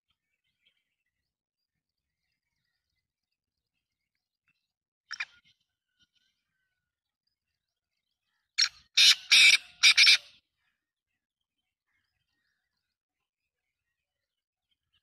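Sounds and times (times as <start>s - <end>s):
bird calling: 8.2s - 10.9s.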